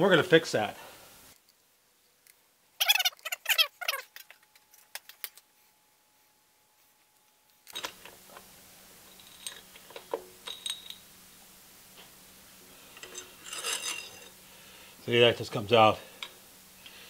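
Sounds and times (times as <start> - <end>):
short squeaks: 2.8 - 4.4.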